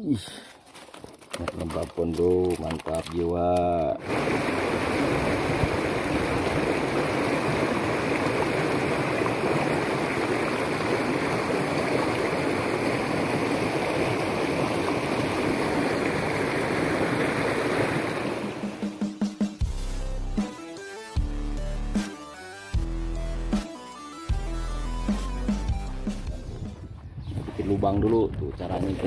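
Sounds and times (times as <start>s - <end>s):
stream rushing over stones: 2.4s - 18.8s.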